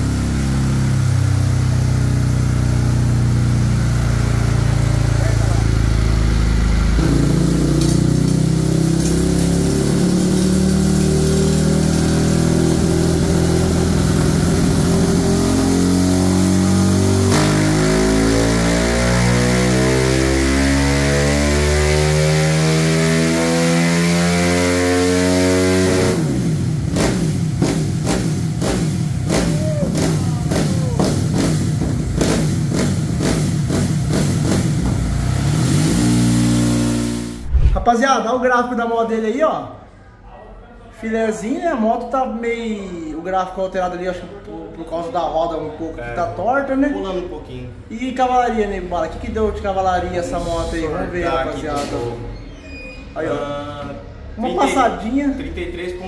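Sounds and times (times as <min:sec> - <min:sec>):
motorcycle engine revving under load: 0:00.0 - 0:37.8
exhaust pops and crackles: 0:07.0 - 0:12.0.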